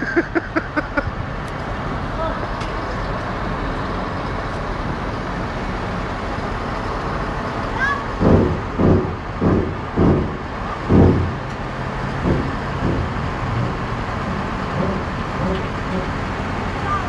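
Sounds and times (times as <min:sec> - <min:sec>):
diesel truck engines running: 0:00.0 - 0:17.0
loud low rumbles: 0:00.0 - 0:17.0.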